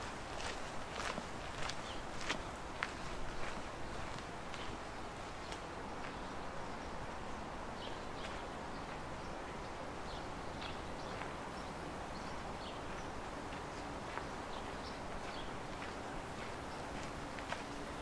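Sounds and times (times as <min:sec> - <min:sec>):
footsteps on leafy dirt trail: 0:00.0 - 0:06.2, 0:12.9 - 0:18.0
steady outdoor hiss: 0:00.0 - 0:18.0.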